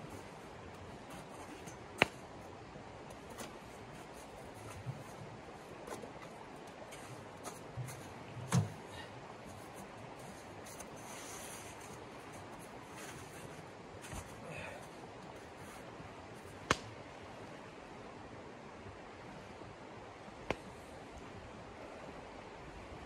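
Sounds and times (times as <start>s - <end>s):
camp gear knocking: 5.9s - 8.9s.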